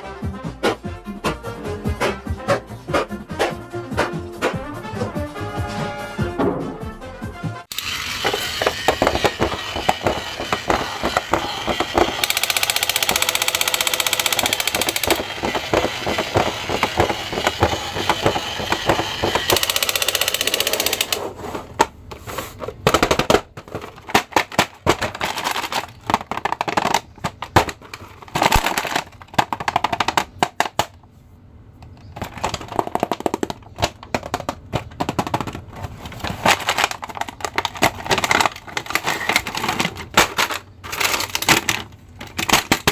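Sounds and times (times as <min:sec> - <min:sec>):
toy machine-gun sound effect: 0:07.7 - 0:21.2
toy packaging crinkling: 0:07.7 - 0:21.3, 0:22.4 - 0:30.9, 0:32.0 - 0:42.9.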